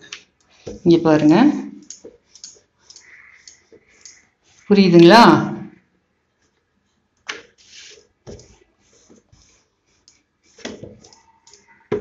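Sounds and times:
rolling pin working dough: 7.6s - 12.0s.

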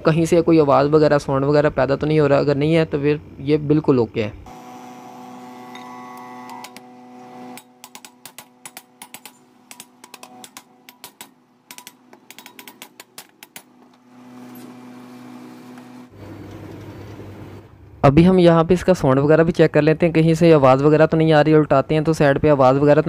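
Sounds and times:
steady electrical hum: 0.0s - 23.0s
metallic clicks and taps: 7.8s - 14.0s.

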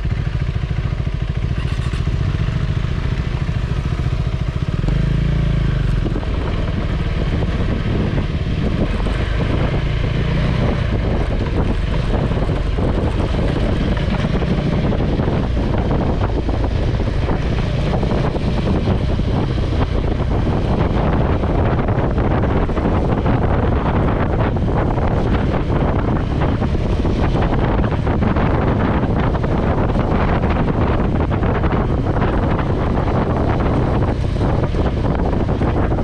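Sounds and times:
motorcycle engine running: 0.0s - 36.0s
wind rushing over microphone: 0.0s - 36.0s.

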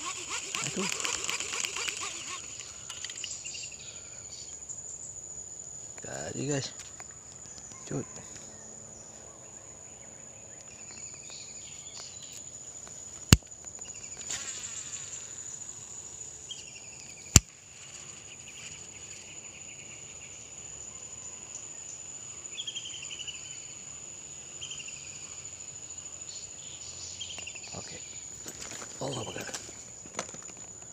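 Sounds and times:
sharp clicks: 0.0s - 3.4s
insects chirping: 0.0s - 30.9s
insects droning: 0.0s - 30.9s.

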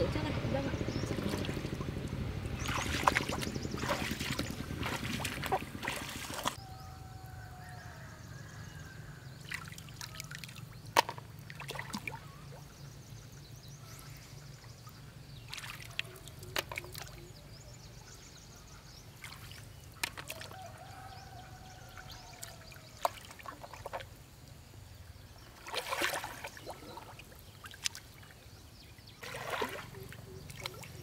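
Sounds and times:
muddy water splashing: 0.8s - 6.6s, 9.4s - 12.8s, 14.7s - 17.4s, 19.1s - 24.2s, 25.3s - 31.0s
water trickling and dripping: 29.2s - 31.0s.

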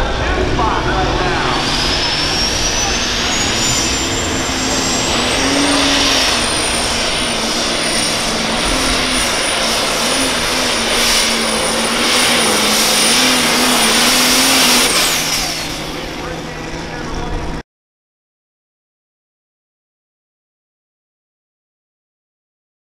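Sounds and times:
turbocharger whistle: 0.0s - 17.3s
diesel tractor at full throttle: 0.0s - 17.6s.

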